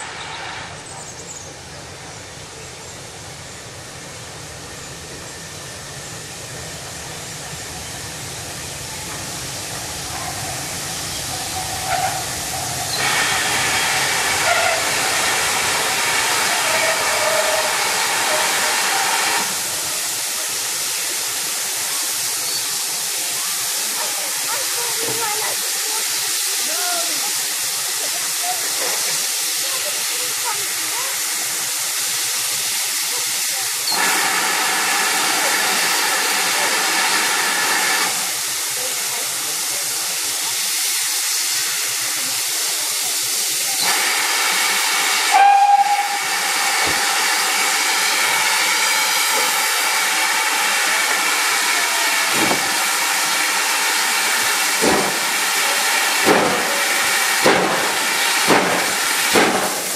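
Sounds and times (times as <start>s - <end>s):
steam hissing: 0.0s - 59.9s
steam whistle toot: 13.8s - 15.1s, 16.4s - 19.2s, 45.2s - 46.5s.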